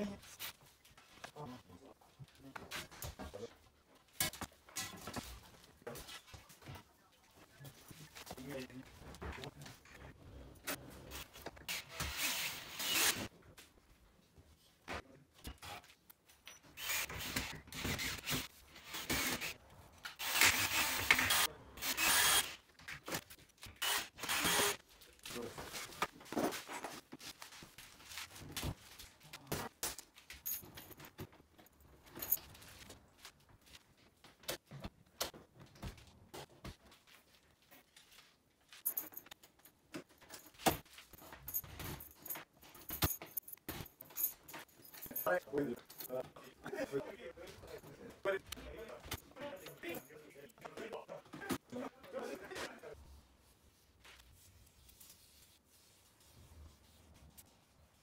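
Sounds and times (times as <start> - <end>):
rubbing and scraping on door frame: 53.4 - 58.0.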